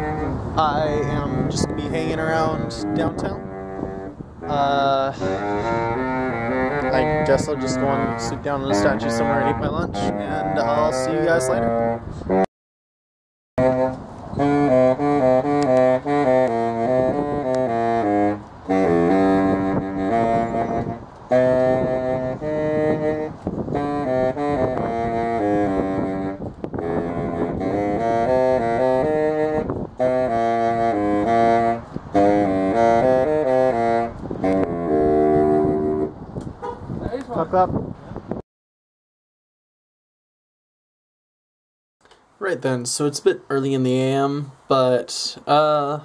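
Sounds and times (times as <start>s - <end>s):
saxophone melody: 0.0s - 12.5s, 13.6s - 36.2s.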